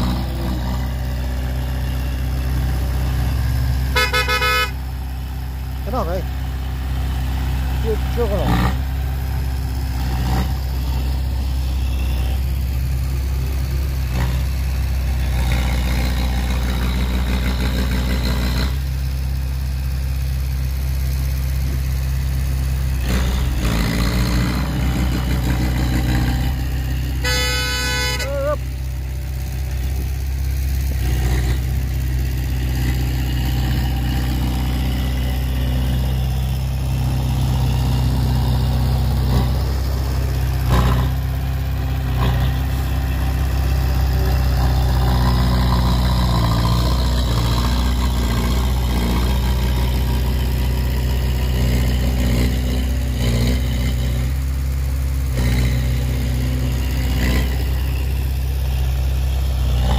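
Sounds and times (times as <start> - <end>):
truck diesel engine running: 0.0 - 59.9
vehicle horn: 3.9 - 4.8, 27.2 - 28.6.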